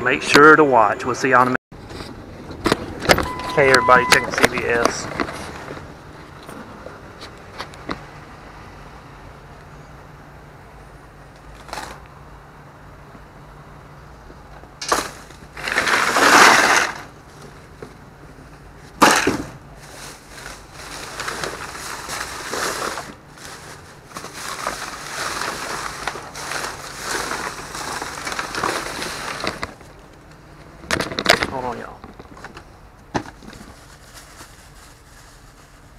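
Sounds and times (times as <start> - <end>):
plastic bags rustling: 14.9 - 17.8, 18.8 - 30.0, 33.2 - 35.9.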